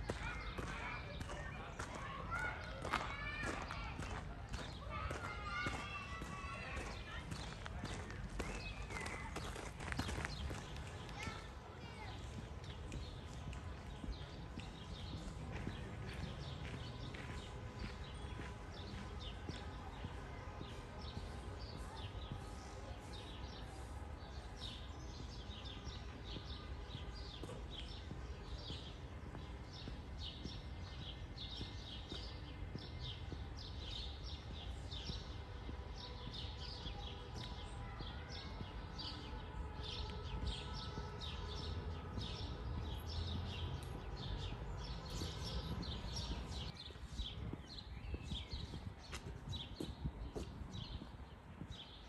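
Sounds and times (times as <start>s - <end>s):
low town rumble: 0.0s - 52.0s
birds singing: 36.0s - 52.0s.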